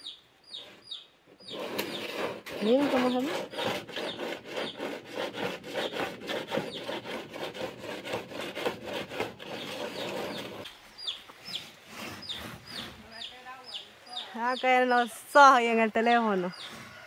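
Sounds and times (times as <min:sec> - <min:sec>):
bird chirps: 0:00.0 - 0:04.8, 0:09.5 - 0:15.2, 0:16.1 - 0:16.8
wire scraping inside drain pipe: 0:01.4 - 0:10.8, 0:11.6 - 0:13.1.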